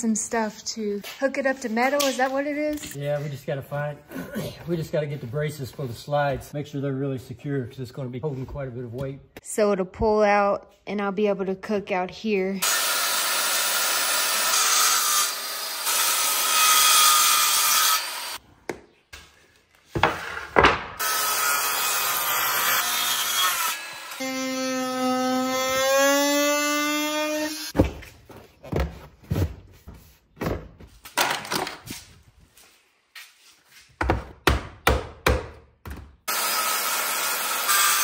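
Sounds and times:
power drill running: 12.6s - 16.6s
circular saw cutting wood: 12.6s - 18.4s, 21.0s - 27.8s, 36.3s - 38.0s
boards knocking and clattering: 19.9s - 21.0s.

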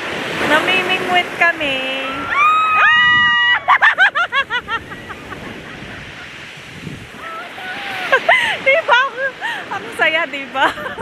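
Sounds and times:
surf washing on shore: 0.0s - 11.0s
woman shrieking with laughter: 2.1s - 5.6s, 7.2s - 9.6s.

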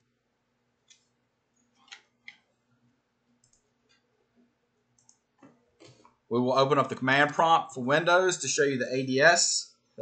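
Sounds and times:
computer mouse clicks: 1.8s - 2.4s, 3.4s - 4.0s, 5.0s - 6.2s.

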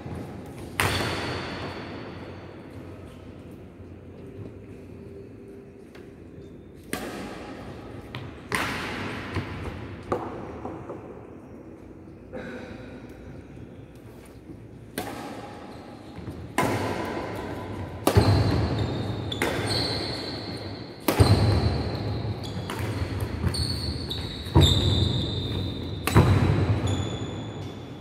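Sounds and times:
rackets hitting shuttlecock: 0.1s - 2.8s, 6.8s - 11.2s, 14.8s - 27.8s
shoe squeaks on court: 18.2s - 26.0s, 26.7s - 28.0s.

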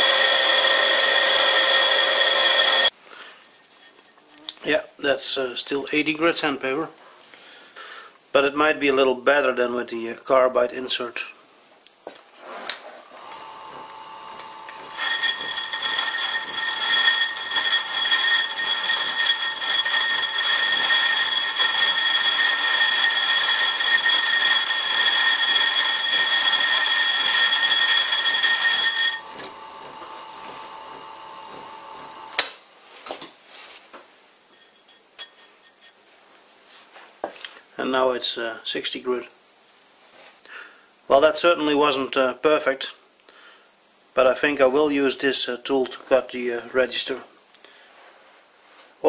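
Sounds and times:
lathe turning metal: 0.0s - 2.9s, 13.0s - 32.4s
shop vacuum whining: 0.0s - 2.9s, 13.0s - 32.4s.

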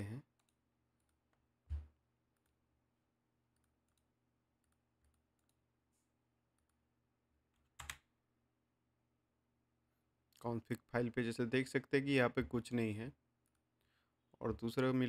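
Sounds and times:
computer mouse clicks: 3.5s - 5.6s.

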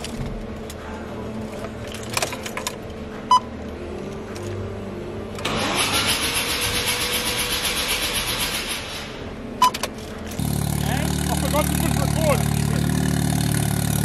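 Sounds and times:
starter motor cranking engine: 5.4s - 8.6s, 10.3s - 14.0s.

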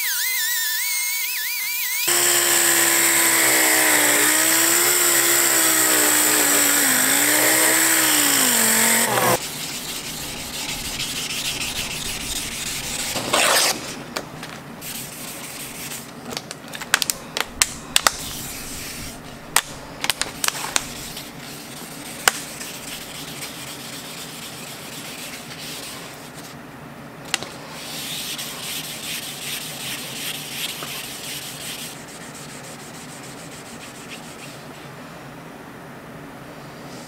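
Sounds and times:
pad scrubbing knife blade: 2.1s - 13.9s.

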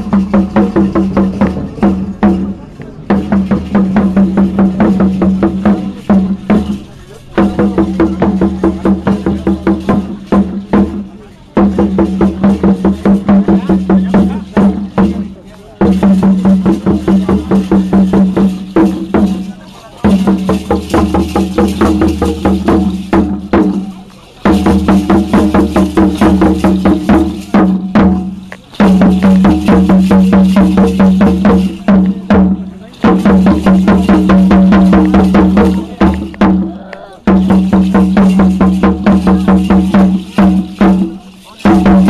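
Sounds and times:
rapid drumming: 0.0s - 42.0s.

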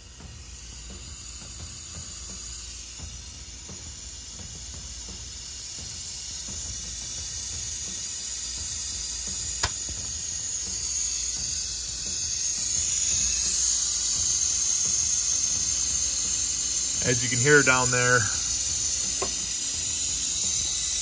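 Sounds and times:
compressed air hissing: 0.0s - 21.0s
sharp click: 9.6s - 10.0s.

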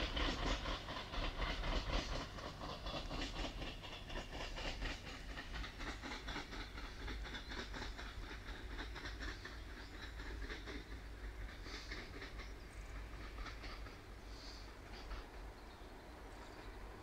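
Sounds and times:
low train rumble: 0.0s - 17.0s
train wheels clickety-clack on rails: 0.0s - 17.0s.

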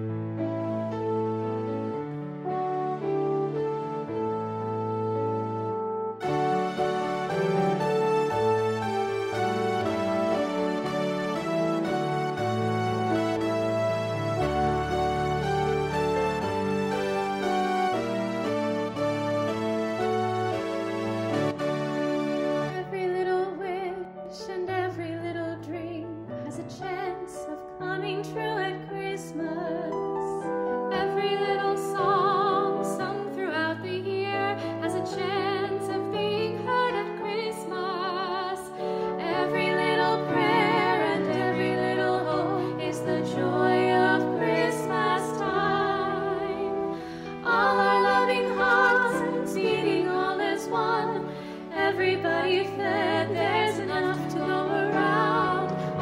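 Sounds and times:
instrumental accompaniment: 0.0s - 23.3s, 34.3s - 56.0s
women singing: 22.8s - 56.0s.

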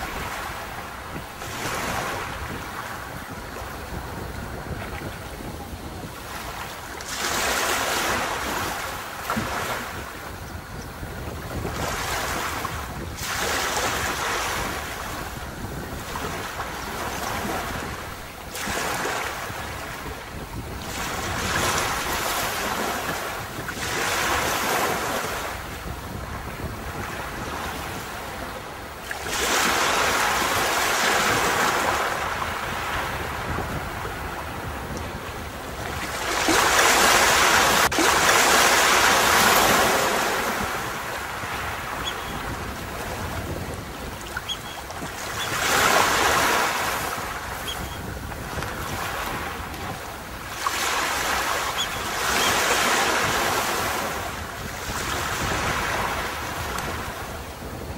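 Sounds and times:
sea waves breaking on beach: 0.0s - 57.9s.

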